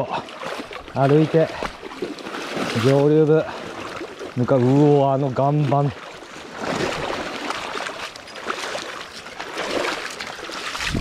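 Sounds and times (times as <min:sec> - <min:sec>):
footsteps splashing through water: 0:00.0 - 0:11.0
river current rushing: 0:06.0 - 0:11.0.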